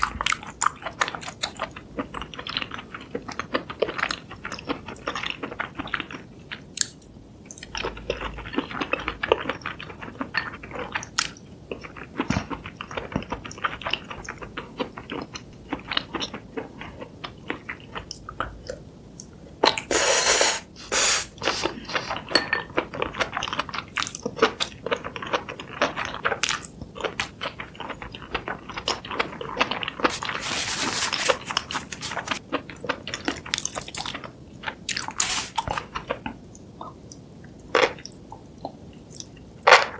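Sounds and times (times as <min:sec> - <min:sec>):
wet chewing and mouth sounds: 0:00.0 - 0:19.9, 0:21.4 - 0:39.9
loud hissy burst: 0:19.9 - 0:21.4, 0:35.2 - 0:35.6.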